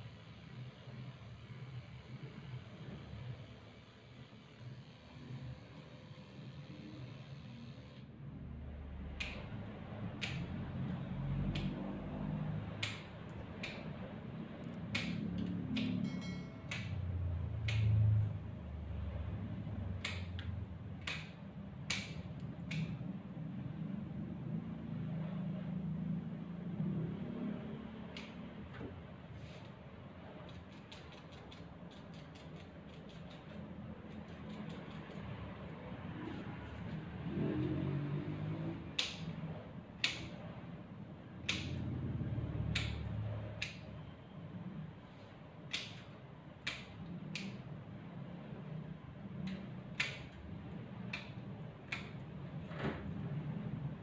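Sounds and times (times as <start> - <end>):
steady low hum: 0.0 - 54.0
scissors snipping fur: 10.1 - 10.6, 14.7 - 16.0, 30.4 - 35.4, 38.9 - 39.4, 40.0 - 40.4, 41.4 - 41.8, 45.7 - 47.6, 49.5 - 50.4.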